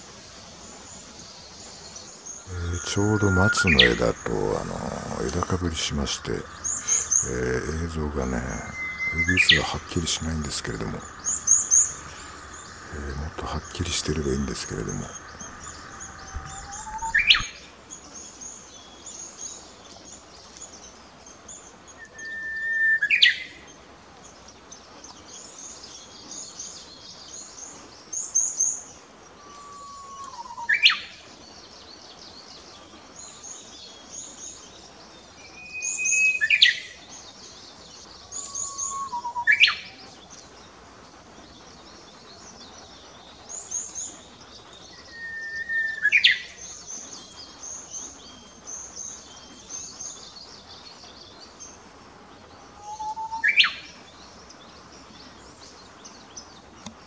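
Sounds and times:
small birds twittering: 0:00.0 - 0:57.0
bird whistling song: 0:01.9 - 0:17.6, 0:22.0 - 0:23.5, 0:29.4 - 0:31.1, 0:35.4 - 0:36.9, 0:38.2 - 0:40.0, 0:43.5 - 0:51.0, 0:52.8 - 0:54.2.

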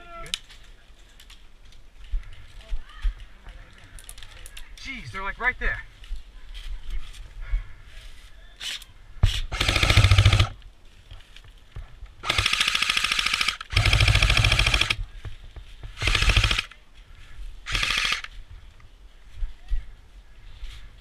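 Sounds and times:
airsoft gun firing bursts: 0:09.5 - 0:10.6, 0:12.2 - 0:15.0, 0:16.0 - 0:16.7, 0:17.7 - 0:18.3.

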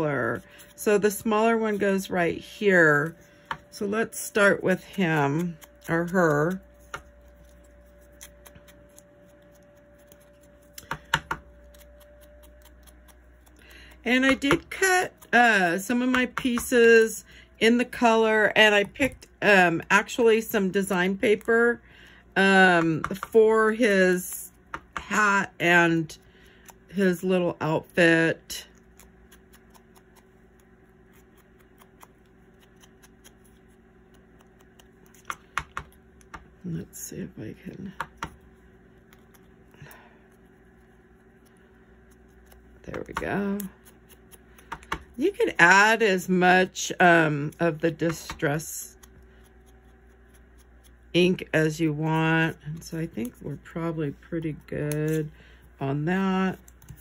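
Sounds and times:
faint steady hum: 0:00.0 - 0:57.0
foam dauber tapping on card: 0:10.8 - 0:11.5, 0:35.1 - 0:36.5, 0:44.6 - 0:45.2.

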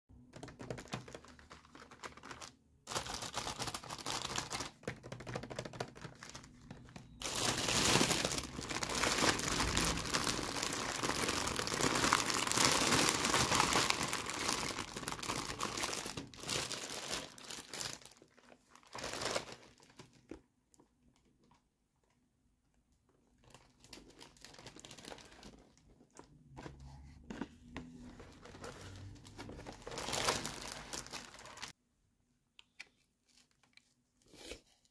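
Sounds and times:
plastic bags crinkling: 0:00.4 - 0:20.3, 0:23.4 - 0:26.3, 0:28.2 - 0:31.8.

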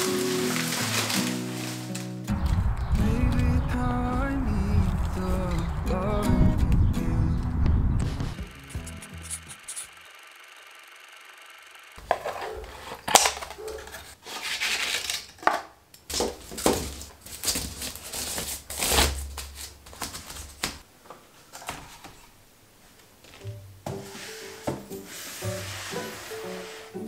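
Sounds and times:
woven basket creaking and rustling: 0:00.0 - 0:02.3, 0:12.0 - 0:22.4.

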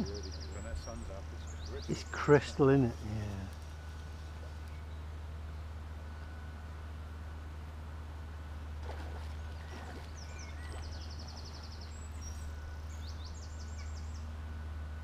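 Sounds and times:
songbird trilling: 0:00.0 - 0:02.6.

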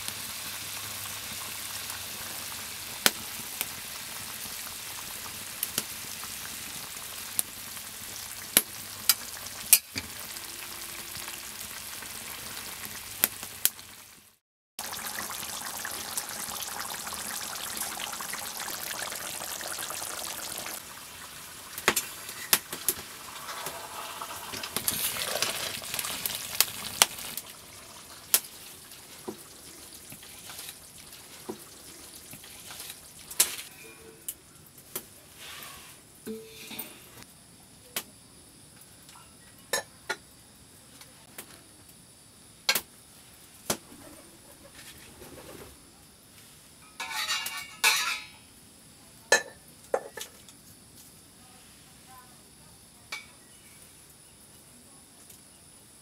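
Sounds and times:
curry bubbling and sizzling: 0:00.0 - 0:33.8.

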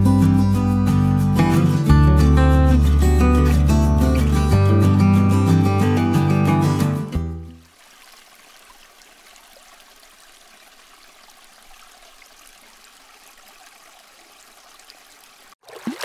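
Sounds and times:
guitar music: 0:00.0 - 0:07.6
water trickling through channels: 0:02.7 - 0:04.7, 0:07.2 - 0:16.0.

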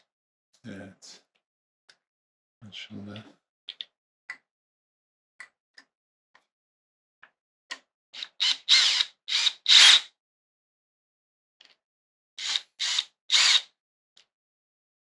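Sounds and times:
drill driving a screw: 0:08.2 - 0:10.1, 0:12.4 - 0:13.7.

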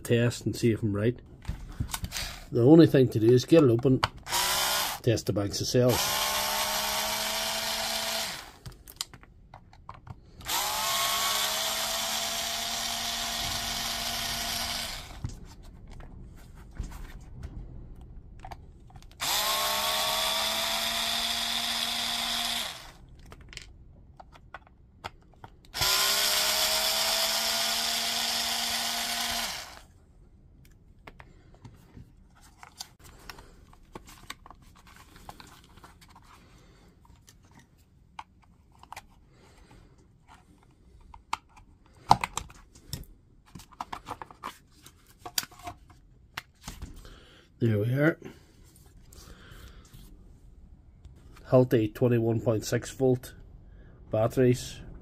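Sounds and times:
electric screwdriver motor whining: 0:04.3 - 0:05.1, 0:05.9 - 0:08.6, 0:10.4 - 0:15.2, 0:19.2 - 0:23.0, 0:25.7 - 0:29.9.

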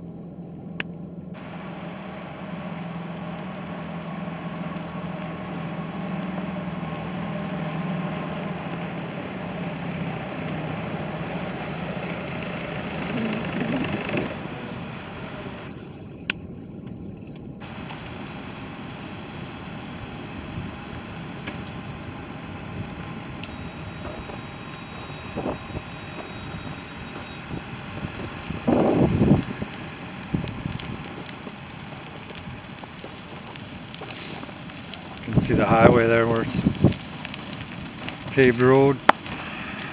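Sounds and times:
snow groomer engine running: 0:01.4 - 0:16.1, 0:17.6 - 0:39.9
wind noise on microphone: 0:22.0 - 0:31.2, 0:35.2 - 0:37.0.

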